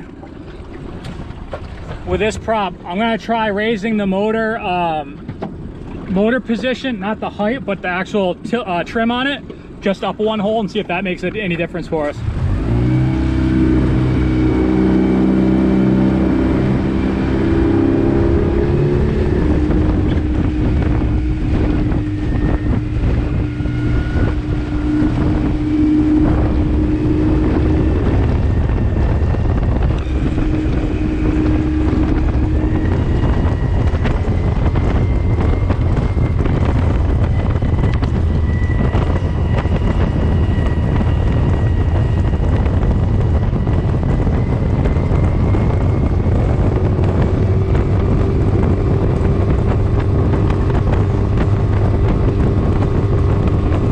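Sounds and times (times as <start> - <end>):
water rushing past: 0.0 - 41.1
outboard motor running hard: 0.0 - 53.9
wind buffeting microphone: 0.0 - 53.9.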